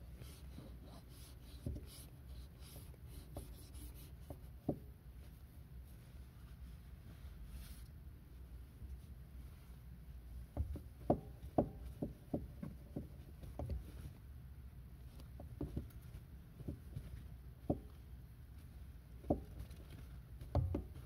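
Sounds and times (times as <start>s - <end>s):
car pedal knocking: 10.6s - 13.8s.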